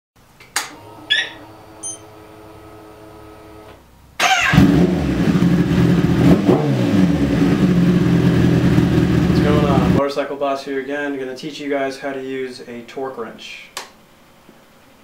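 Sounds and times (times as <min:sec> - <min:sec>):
motorcycle engine starting and running: 0:00.7 - 0:10.0
short electronic beeps: 0:01.1 - 0:02.1.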